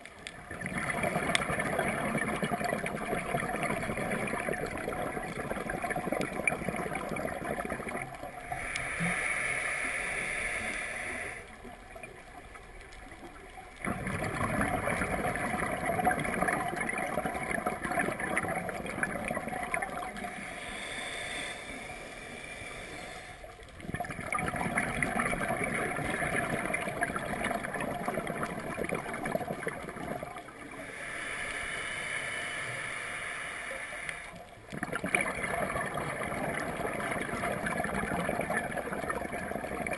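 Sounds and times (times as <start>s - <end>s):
bubbling exhalations: 0.4s - 8.8s, 13.8s - 20.4s, 23.8s - 30.8s, 34.7s - 39.9s
diver breathing through regulator: 8.4s - 11.6s, 20.1s - 23.6s, 30.7s - 34.5s.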